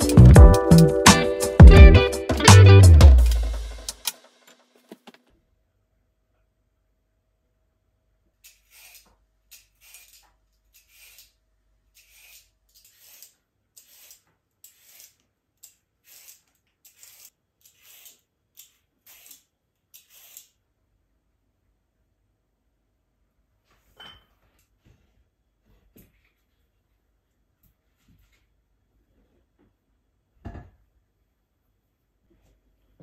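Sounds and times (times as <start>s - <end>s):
vegetable peeler scraping carrot: 8.4s - 20.6s.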